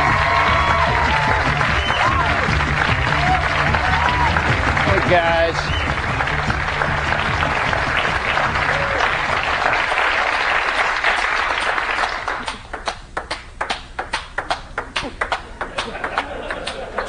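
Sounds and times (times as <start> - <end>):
low music tones: 0.0 - 9.8
audience applauding: 0.0 - 17.0.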